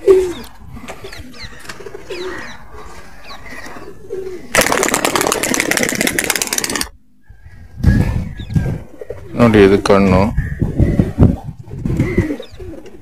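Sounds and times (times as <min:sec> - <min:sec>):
pigeons cooing: 0:00.0 - 0:13.0
loud rapid rustling: 0:04.6 - 0:06.9.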